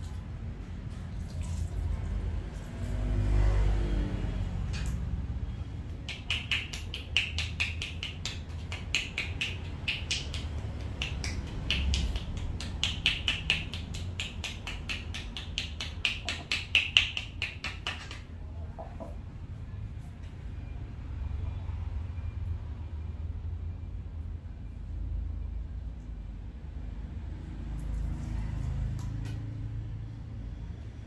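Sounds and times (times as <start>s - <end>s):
hands clapping on body: 5.9s - 18.3s.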